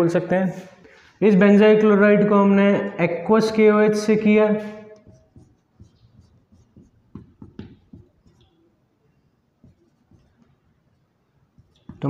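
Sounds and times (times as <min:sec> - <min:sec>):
marker writing on whiteboard: 0:04.2 - 0:12.0.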